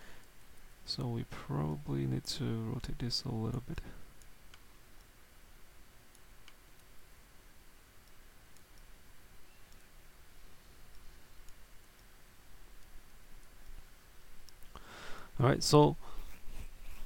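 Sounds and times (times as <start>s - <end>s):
low steady hiss: 0.0s - 17.0s
computer mouse clicks: 6.1s - 6.9s, 8.0s - 8.9s.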